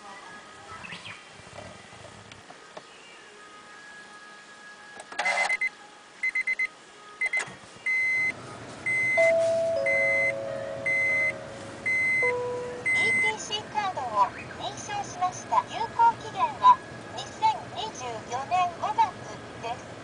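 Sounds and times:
dashboard warning chime beeps: 5.4s - 13.5s
low hum: 7.9s - 20.0s.

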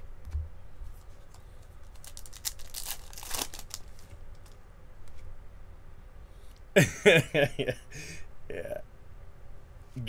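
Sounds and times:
cards crinkling and rustling: 0.9s - 5.2s.

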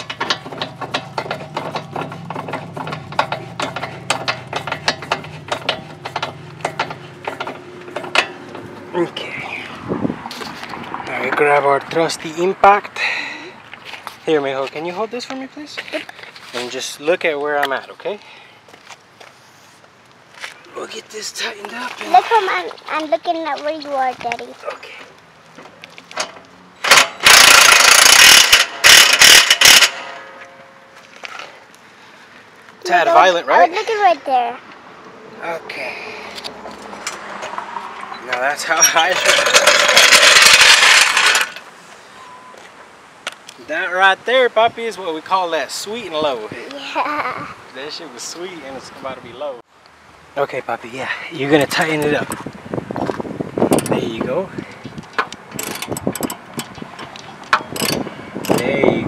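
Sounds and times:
impact wrench hammering: 0.0s - 8.6s, 26.2s - 30.6s
socket ratchet clicking: 55.1s - 58.6s.

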